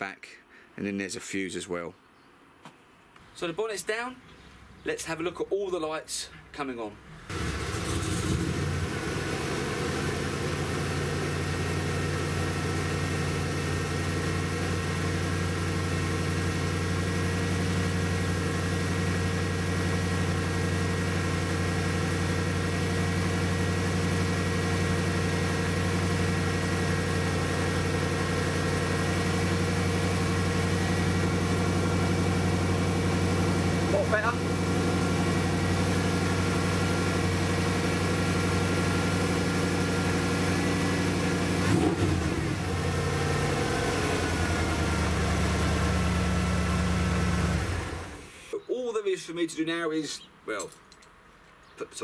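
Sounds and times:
vehicle engine idling: 0:07.0 - 0:48.5.

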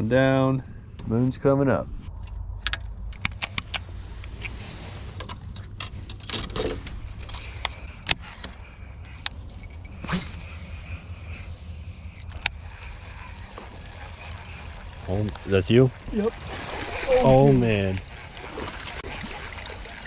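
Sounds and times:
night insects chirring: 0:00.0 - 0:20.0
sharp clicks: 0:02.3 - 0:03.8.

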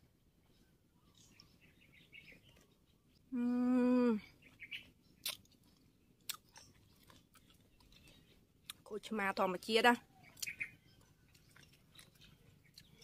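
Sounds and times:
soft chewing: 0:00.0 - 0:13.0
woman humming mmm: 0:03.3 - 0:04.2.

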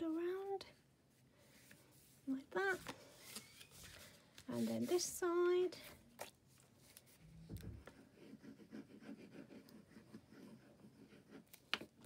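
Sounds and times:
soft thump: 0:07.4 - 0:07.9.

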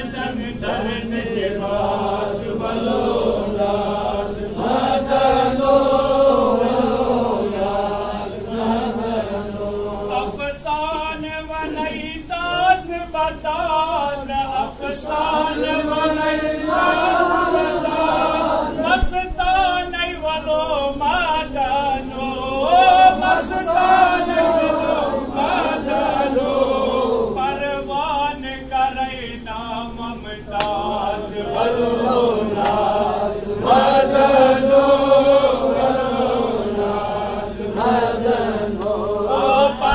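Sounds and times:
men's voices chanting: 0:14.6 - 0:19.1, 0:21.7 - 0:28.0, 0:30.6 - 0:39.9.

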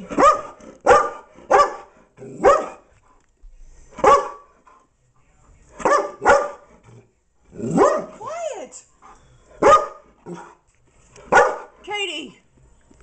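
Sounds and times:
dog barking loudly: 0:00.0 - 0:02.8, 0:04.0 - 0:04.5, 0:05.8 - 0:06.7, 0:07.6 - 0:08.2, 0:09.6 - 0:10.1, 0:11.3 - 0:11.8.

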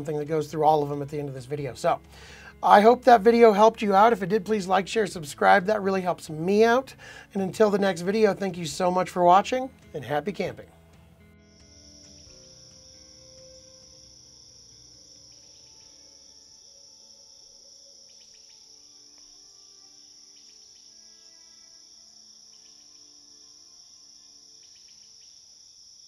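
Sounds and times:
crickets chirping: 0:11.3 - 0:26.0.

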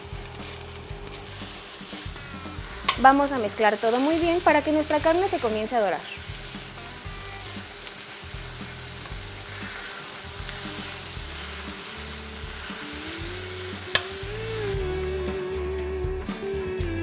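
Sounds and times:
meat sizzling in a pan: 0:00.0 - 0:15.0.

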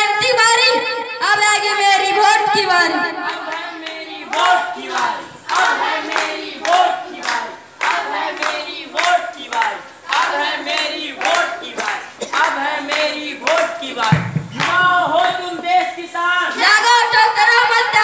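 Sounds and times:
group singing in unison: 0:03.1 - 0:18.0
hand claps: 0:03.3 - 0:15.5.

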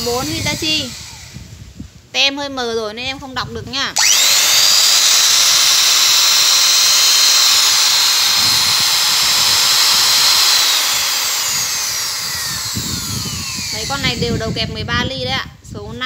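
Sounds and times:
electric drill motor whine: 0:00.0 - 0:01.6, 0:04.0 - 0:14.9.

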